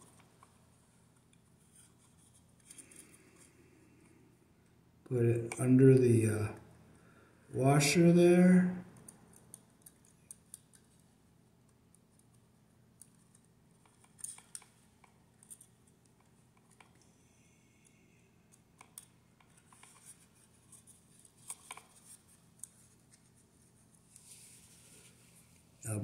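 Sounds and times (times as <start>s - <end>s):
small clicks and scratches of wire: 8.9s - 17.2s, 17.8s - 25.6s.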